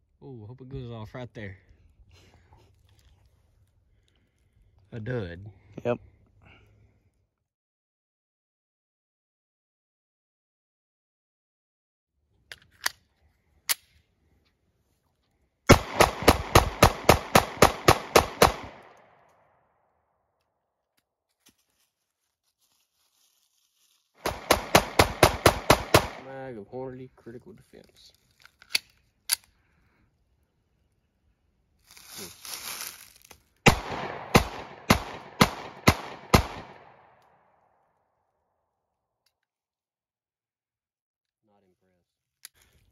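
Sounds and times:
pistol shots: 15.7 - 19.0, 24.2 - 26.3, 33.6 - 37.2.

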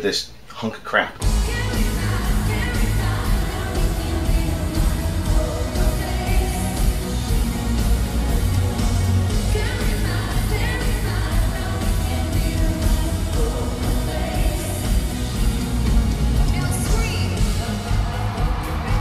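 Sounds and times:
person singing: 1.2 - 8.1, 9.4 - 15.6
live pop music: 1.2 - 19.0.

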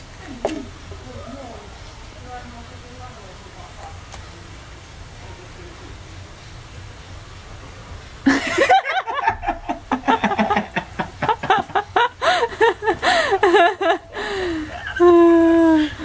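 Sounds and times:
people laughing hard: 8.3 - 16.0.

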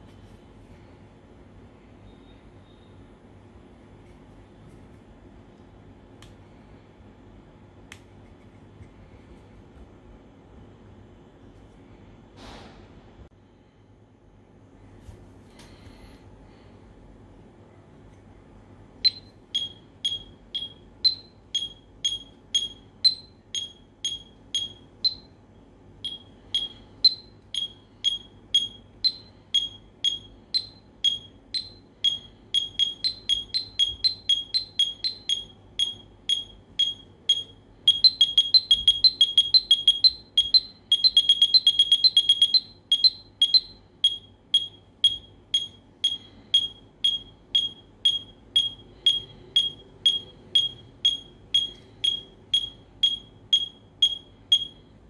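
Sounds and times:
digital metronome beeping: 19.0 - 25.3, 26.0 - 54.8.

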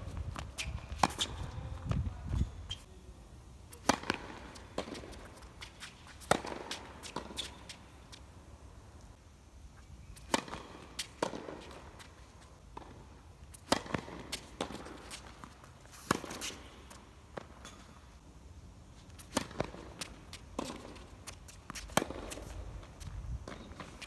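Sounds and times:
tennis ball bounces: 3.7 - 7.8, 10.2 - 12.1, 12.7 - 16.6, 19.2 - 22.6.

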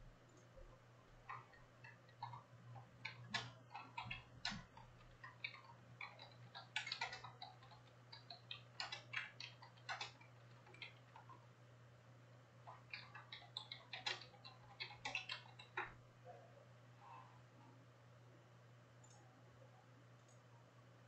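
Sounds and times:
low electrical hum: 0.0 - 21.0
small objects clicking on desk: 1.2 - 11.4, 12.7 - 16.0.

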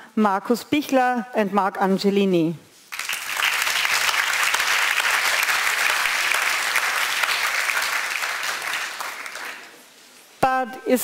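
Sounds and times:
audience applauding: 2.9 - 9.8.

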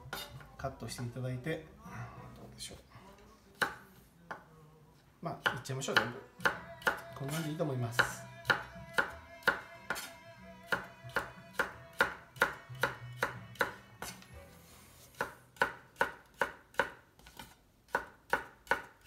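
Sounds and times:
knife dicing squash on wooden board: 5.4 - 10.1, 15.1 - 19.0.

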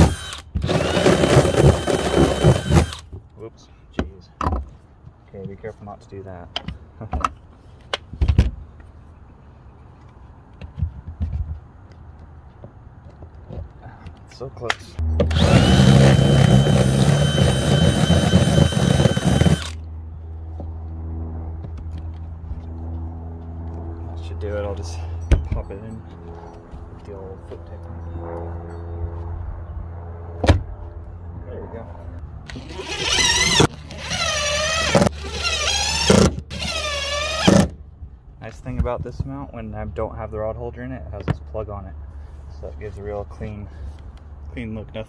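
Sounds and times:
cordless drill boring: 0.0 - 3.0, 15.3 - 19.8, 32.5 - 37.7
impact driver whining: 0.0 - 3.1, 15.2 - 19.8, 32.5 - 37.8.

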